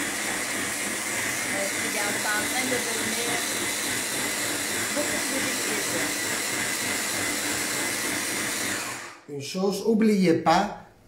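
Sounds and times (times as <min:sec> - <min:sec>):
electric blender whining: 0:00.0 - 0:09.3.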